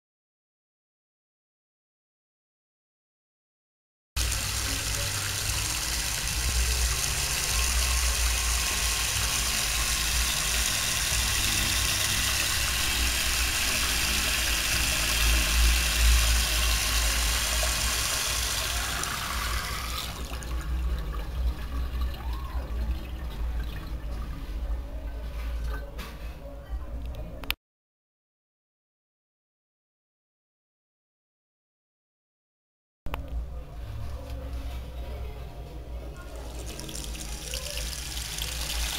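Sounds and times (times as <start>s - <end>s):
tap water spraying into sink: 4.2s - 20.5s, 36.4s - 38.9s.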